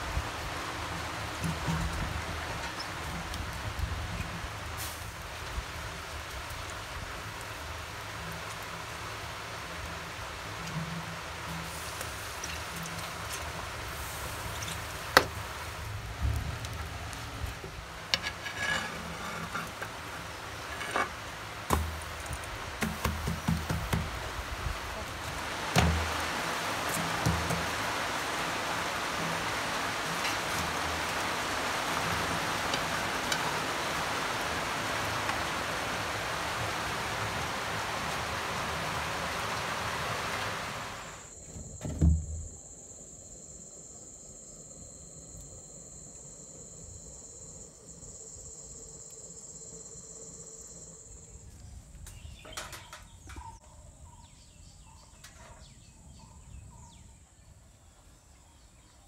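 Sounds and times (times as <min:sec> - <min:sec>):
steady dense hiss: 0:00.0 - 0:58.6
insects calling: 0:00.0 - 0:59.0
small rustles: 0:09.6 - 0:23.3.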